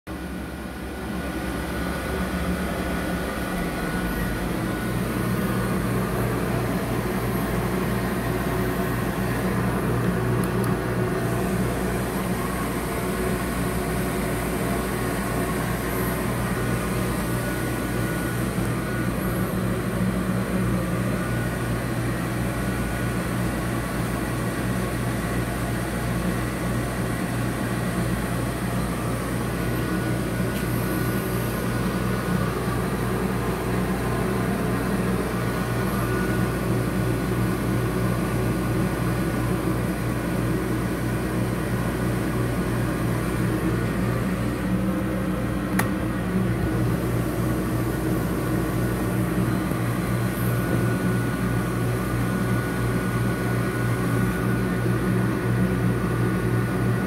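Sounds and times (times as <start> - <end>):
cooling fans humming: 0.1 - 57.0
low electrical drone: 0.1 - 57.0.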